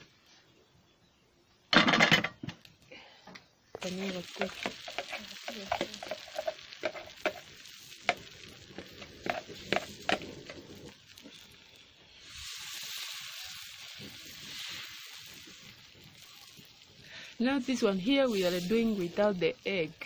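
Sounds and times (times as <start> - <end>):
batter sizzling in a pan: 3.7 - 20.0
metal spoon scraping a frying pan: 4.2 - 10.9.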